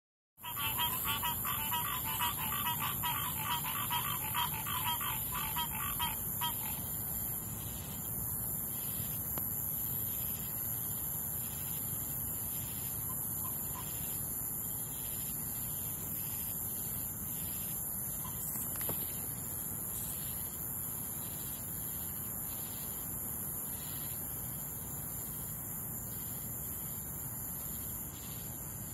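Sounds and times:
tree frog trilling: 0.4 - 7.0, 12.6 - 14.2, 16.0 - 20.6
crickets and cicadas chorus: 0.4 - 28.9.

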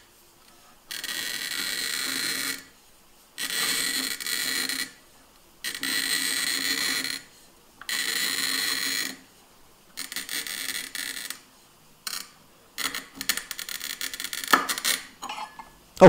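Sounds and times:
glass cutter scoring bottle: 0.9 - 2.7, 3.4 - 5.0, 5.7 - 9.2, 10.0 - 11.4, 12.1 - 15.7
crackling clicks of glass scoring: 12.0 - 15.8.

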